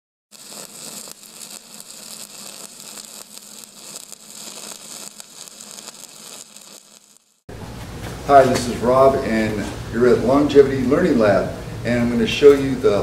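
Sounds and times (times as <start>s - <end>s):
welding arc crackling hiss: 0.3s - 7.5s.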